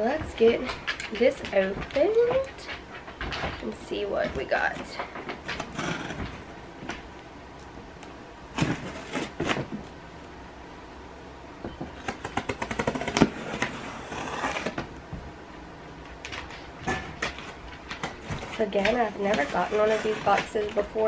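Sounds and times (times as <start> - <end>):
knife cutting packing tape: 8.5 - 9.6, 12.0 - 14.8.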